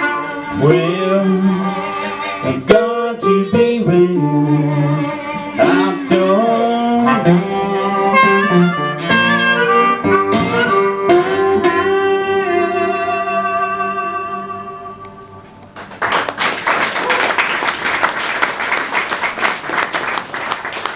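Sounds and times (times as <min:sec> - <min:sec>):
blues harmonica: 0:00.0 - 0:15.6
plucked guitar: 0:00.0 - 0:15.6.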